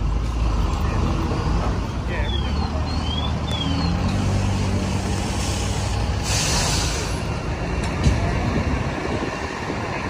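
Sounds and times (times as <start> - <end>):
air hiss: 5.1 - 7.2.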